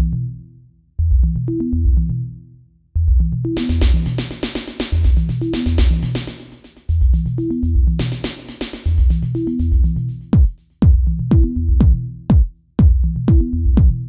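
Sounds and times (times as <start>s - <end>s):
electronic music with drum-machine beat: 3.3s - 14.0s.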